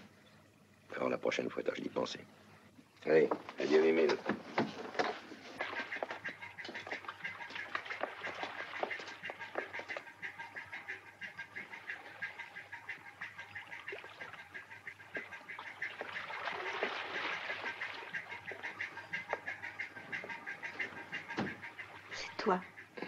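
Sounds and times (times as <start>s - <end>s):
birds squawking: 4.8s - 23.0s.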